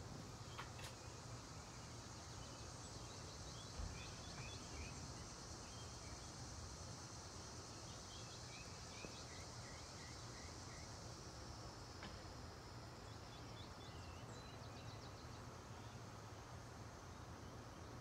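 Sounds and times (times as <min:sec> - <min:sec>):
high insect drone: 0:00.0 - 0:18.0.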